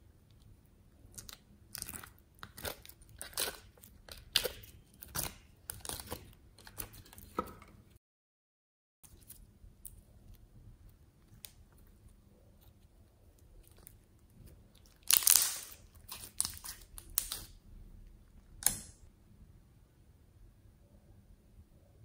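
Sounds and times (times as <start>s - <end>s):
slime crackling and popping: 1.1s - 6.9s, 14.8s - 17.6s.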